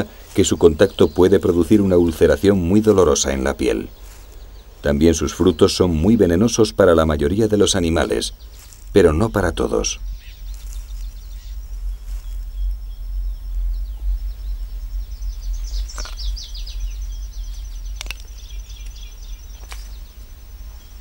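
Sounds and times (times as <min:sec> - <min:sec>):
low rumble: 0:00.0 - 0:21.0
small birds chirping: 0:00.0 - 0:21.0
sharp clicks: 0:17.9 - 0:19.0.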